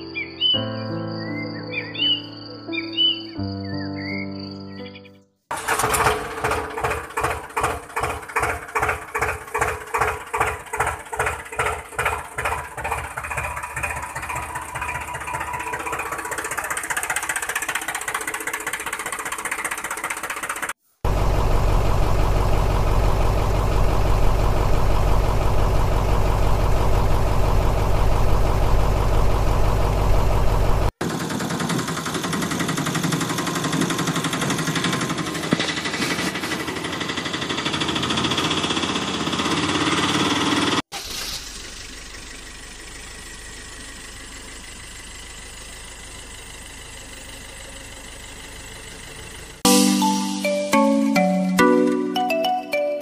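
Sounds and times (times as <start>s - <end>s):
engine-like deep hum: 21.1s - 31.0s.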